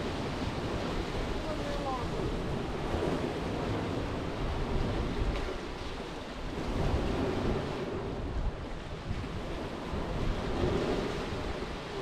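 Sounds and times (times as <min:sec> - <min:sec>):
waves washing over pebbles: 0:00.0 - 0:12.0
wind buffeting microphone: 0:00.0 - 0:12.0.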